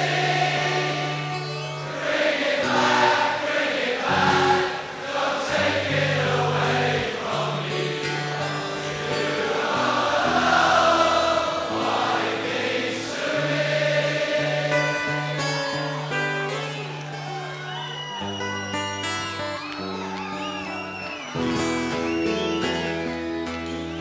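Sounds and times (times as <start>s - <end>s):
song with choir-like vocal harmonies: 0.0s - 16.1s.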